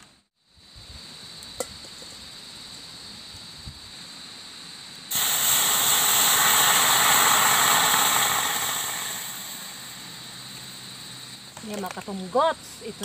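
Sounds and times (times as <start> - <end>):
liquid sizzling in a hot wok: 3.2 - 11.5.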